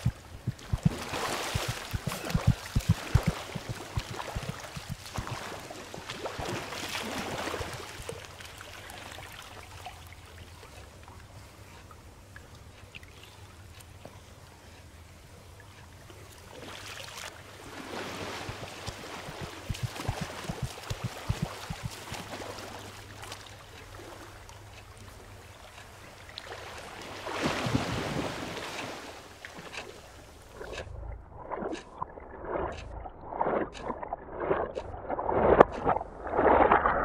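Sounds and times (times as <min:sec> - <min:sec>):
steady low hum: 0:00.0 - 0:08.7, 0:17.3 - 0:26.9, 0:29.2 - 0:36.9
swimmer splashing in pool: 0:00.0 - 0:09.4, 0:16.8 - 0:23.4.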